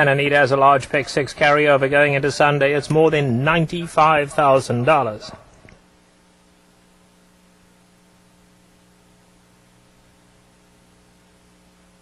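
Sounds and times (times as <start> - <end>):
faint electrical hum: 0.0 - 12.0
low hiss: 0.0 - 12.0.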